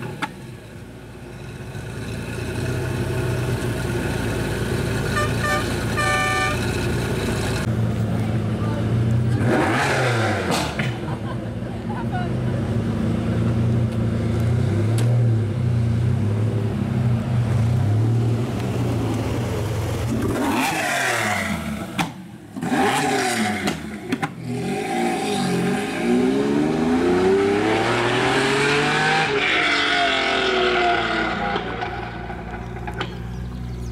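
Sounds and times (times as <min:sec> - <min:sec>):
sports car engine revving: 0:09.3 - 0:10.9.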